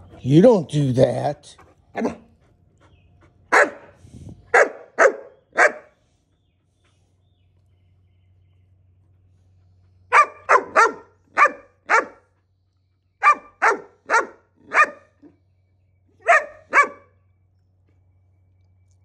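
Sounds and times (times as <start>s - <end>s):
puppy barking: 2.0s - 2.3s, 3.5s - 3.9s, 4.5s - 5.9s, 10.1s - 12.3s, 13.2s - 15.4s, 16.2s - 17.2s.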